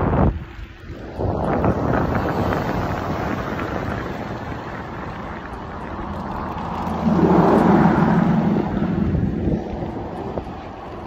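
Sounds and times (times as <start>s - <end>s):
wind rushing over microphone: 0.0s - 11.0s.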